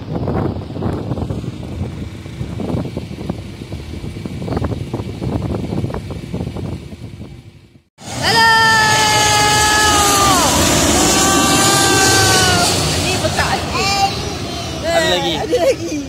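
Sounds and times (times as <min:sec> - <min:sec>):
wind buffeting microphone: 0:00.0 - 0:07.9
distant jet airliner rumble: 0:00.0 - 0:16.0.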